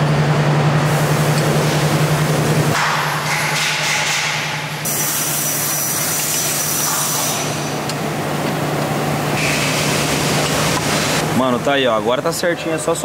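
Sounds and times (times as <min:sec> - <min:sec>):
low machine hum: 0:00.0 - 0:13.0
hiss: 0:04.9 - 0:07.7, 0:09.4 - 0:10.2.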